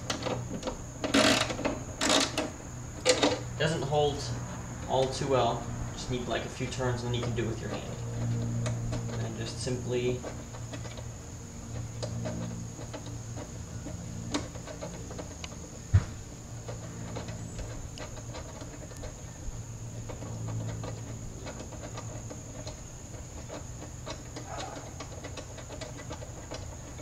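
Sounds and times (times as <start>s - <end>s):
socket wrench clicks and scrapes: 0.0s - 3.5s
low steady hum: 0.0s - 27.0s.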